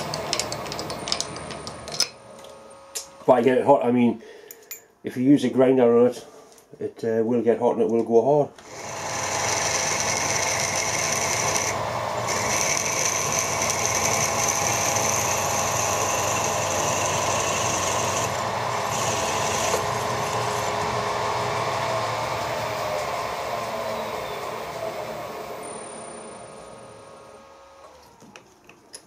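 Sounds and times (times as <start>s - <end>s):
milling machine spindle running: 0.0s - 3.0s, 8.6s - 28.2s
drill cutting into steel: 8.6s - 28.1s.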